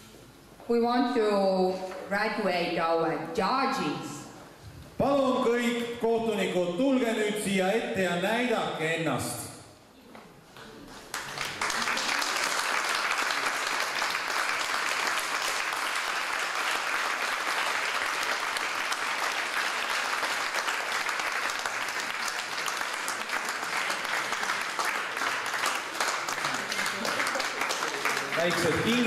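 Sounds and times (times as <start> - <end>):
audience applauding: 10.9 - 29.0.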